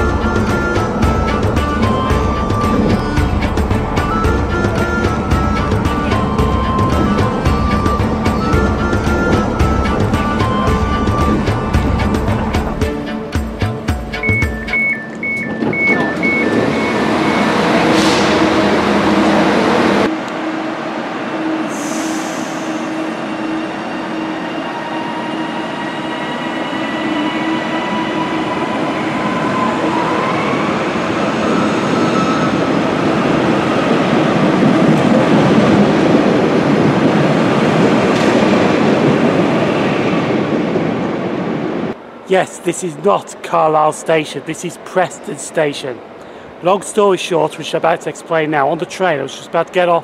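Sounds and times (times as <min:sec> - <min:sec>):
train door alert beeping: 0:00.0 - 0:12.9, 0:14.0 - 0:20.6
traction motors whining: 0:00.0 - 0:13.3, 0:14.2 - 0:35.3
train wheels rumbling: 0:00.0 - 0:48.9.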